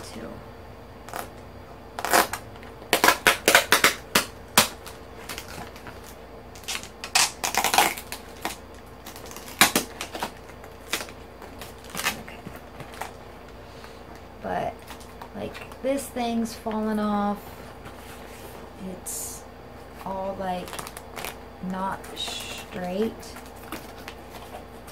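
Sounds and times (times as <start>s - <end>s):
cardboard box crackling and tapping: 8.4s - 13.2s.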